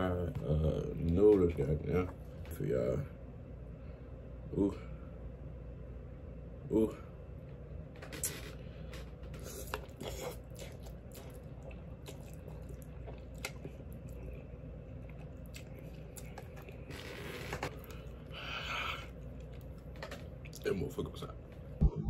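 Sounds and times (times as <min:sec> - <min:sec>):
person chewing and slurping: 0:08.1 - 0:20.6.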